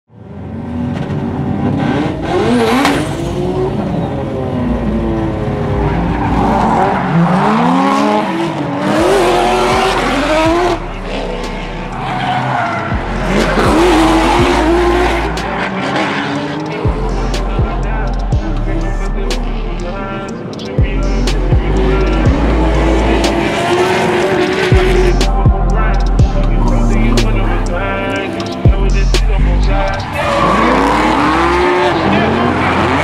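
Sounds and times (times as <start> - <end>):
car engines revving: 0.1 - 33.0
tyres squealing and skidding: 0.9 - 25.2, 29.6 - 33.0.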